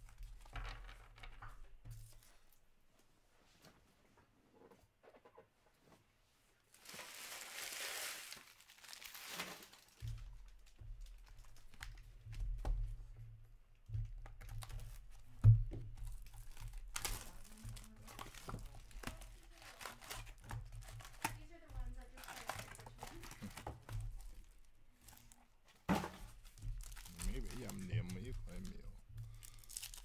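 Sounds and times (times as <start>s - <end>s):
shrink wrap crinkling and tearing: 6.7s - 12.0s, 16.0s - 25.4s, 26.3s - 30.0s.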